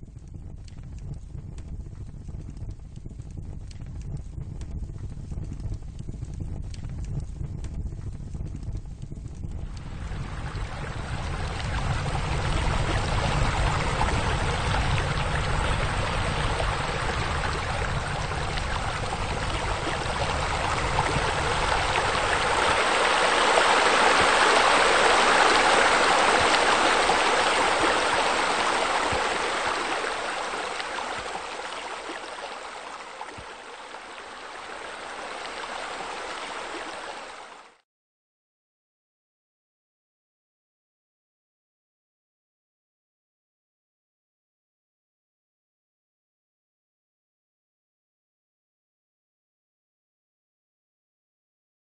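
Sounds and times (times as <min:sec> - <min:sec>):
low rumble: 0:00.0 - 0:35.1
water splashing from jets: 0:09.8 - 0:37.8.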